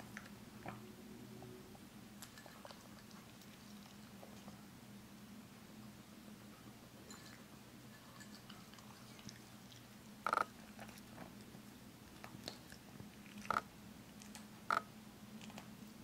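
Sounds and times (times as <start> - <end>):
faint low hum: 0.0 - 16.0
dog chewing kibble: 8.4 - 11.3, 12.1 - 15.7.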